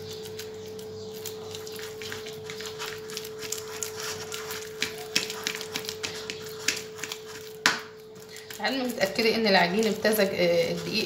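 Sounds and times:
spoon scraping a ceramic bowl: 1.6s - 7.6s.

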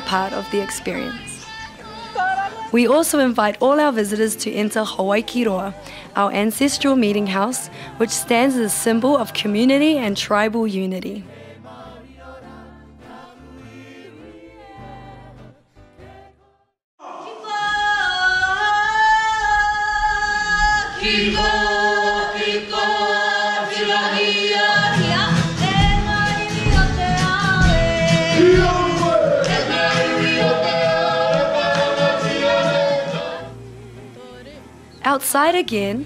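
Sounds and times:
group singing in harmony: 0.0s - 10.1s, 11.2s - 34.5s
steady beat: 25.6s - 32.0s.

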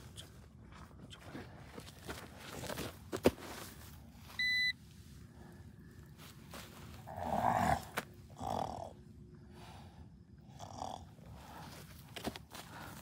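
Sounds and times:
short electronic beep: 4.4s - 4.8s
growling roars: 7.1s - 9.0s.

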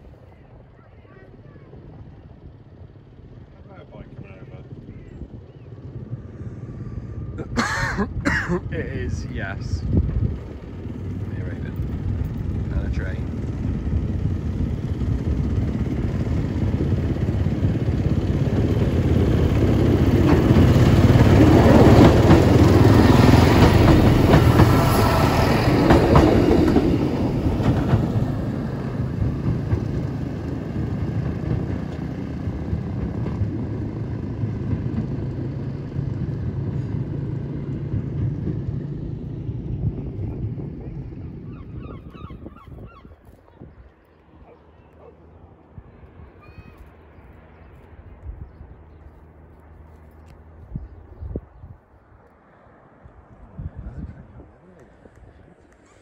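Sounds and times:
passenger train passing: 0.0s - 53.6s
wheels clattering on rails: 10.1s - 41.0s.

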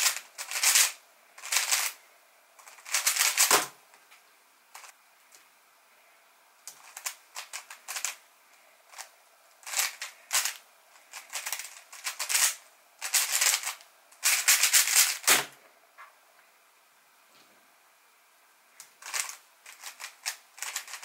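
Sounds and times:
puzzle cube plastic clacking: 0.0s - 2.0s, 6.7s - 8.2s, 8.9s - 15.5s, 18.8s - 21.0s.

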